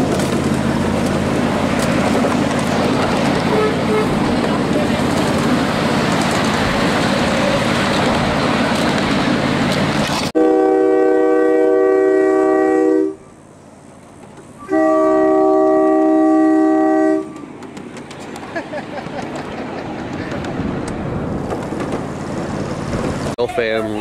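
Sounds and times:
train rumbling along track: 0:00.0 - 0:24.0
train horn blasts: 0:03.5 - 0:04.3, 0:10.4 - 0:13.3, 0:14.6 - 0:17.4.

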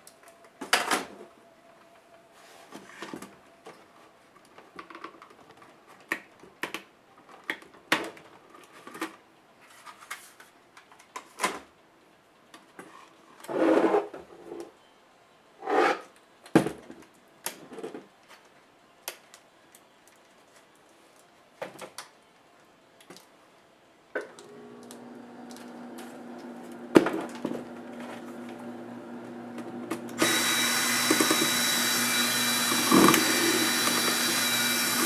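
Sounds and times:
plastic scraping: 0:29.6 - 0:35.0.

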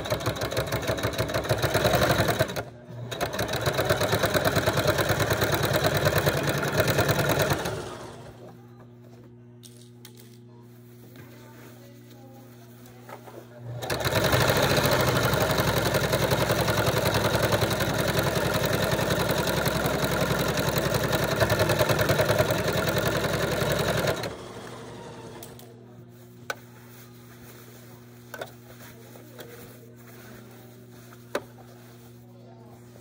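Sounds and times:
sewing machine stitching: 0:00.0 - 0:08.5, 0:13.6 - 0:25.7.

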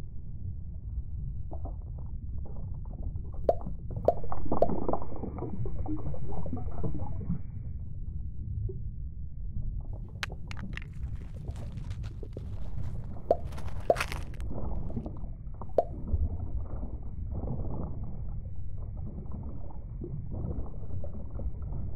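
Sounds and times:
underwater low rumble: 0:00.0 - 0:21.9
sharp drips and clicks: 0:10.2 - 0:14.4.

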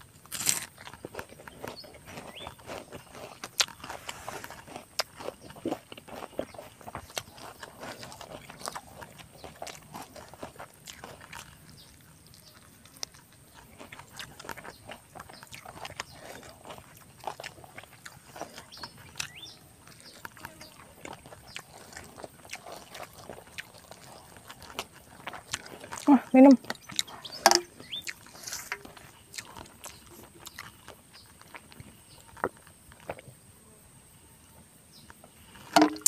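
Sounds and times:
person chewing with lip smacks: 0:00.0 - 0:33.3.

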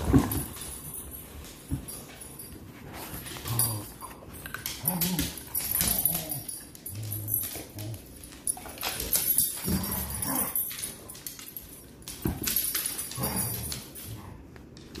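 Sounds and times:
dogs play-growling: 0:02.9 - 0:11.3, 0:12.4 - 0:14.5.

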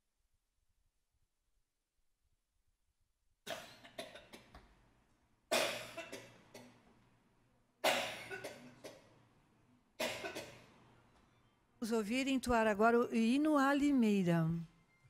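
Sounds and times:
person coughing: 0:05.5 - 0:06.8, 0:07.8 - 0:09.1, 0:10.0 - 0:10.7.

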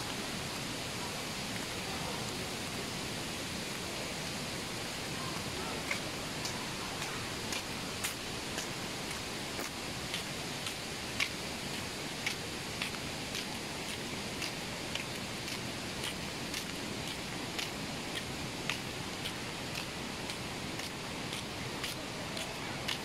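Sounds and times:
falling water hiss: 0:00.0 - 0:23.0.

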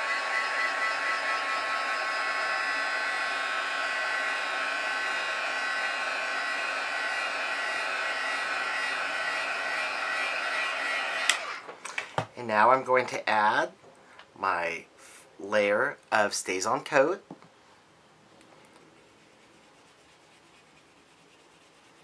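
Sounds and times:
heat tool fan whine: 0:00.0 - 0:12.1.

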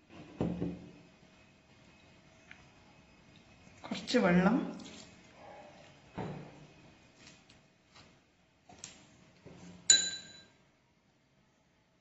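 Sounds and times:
spoon striking steel bowl: 0:09.9 - 0:10.5.

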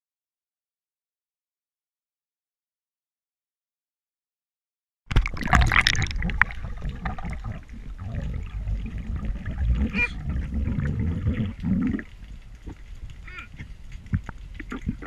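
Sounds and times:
muffled underwater rumble: 0:05.2 - 0:15.0.

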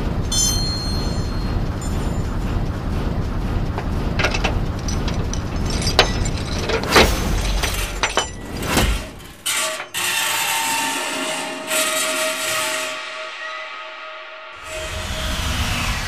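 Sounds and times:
steady low rumble: 0:00.0 - 0:09.4
keys clinking: 0:03.8 - 0:09.4.

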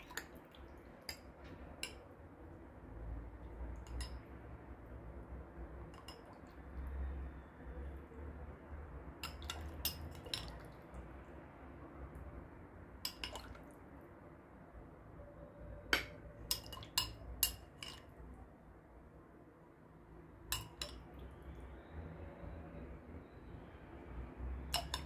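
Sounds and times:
spoon clinking against glass bowl: 0:01.0 - 0:02.1, 0:03.7 - 0:04.4, 0:05.8 - 0:06.6, 0:09.2 - 0:10.8, 0:13.1 - 0:13.6, 0:15.9 - 0:18.2, 0:20.5 - 0:21.3, 0:24.6 - 0:25.0
spoon scooping sauce: 0:09.2 - 0:11.0.

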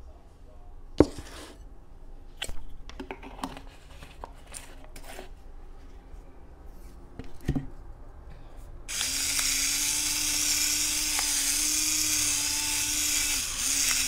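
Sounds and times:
electric pepper grinder humming: 0:08.9 - 0:14.0.

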